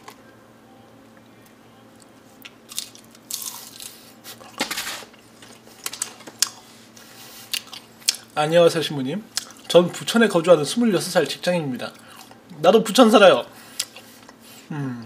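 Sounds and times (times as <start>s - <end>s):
crunchy chewing: 2.4s - 6.7s, 7.3s - 8.4s, 9.3s - 9.7s.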